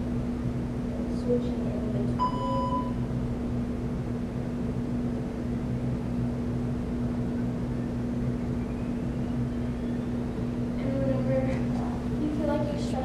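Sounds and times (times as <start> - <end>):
low electrical room hum: 0.0 - 13.0
electronic timer beep: 2.2 - 3.0.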